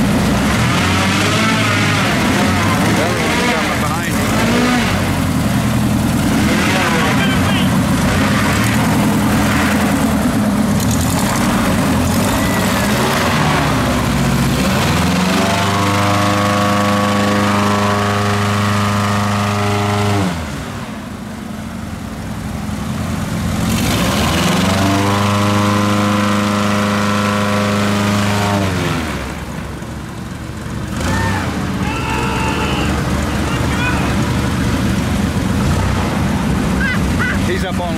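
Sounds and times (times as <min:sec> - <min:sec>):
airboat engine and propeller revving: 0:00.0 - 0:37.9.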